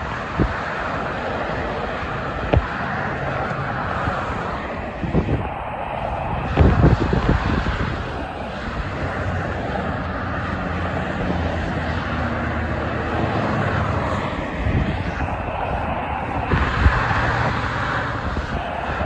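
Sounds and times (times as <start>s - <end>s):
highway traffic roar: 0.0s - 19.0s
tyres on wet pavement: 0.0s - 19.0s.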